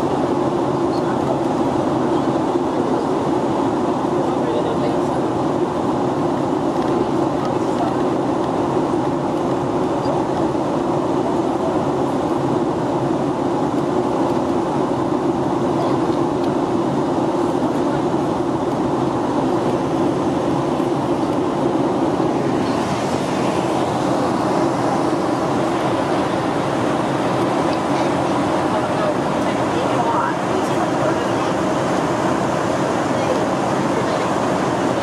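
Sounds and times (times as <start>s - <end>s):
airflow rushing over fuselage: 0.0s - 35.0s
jet engines droning: 0.0s - 35.0s.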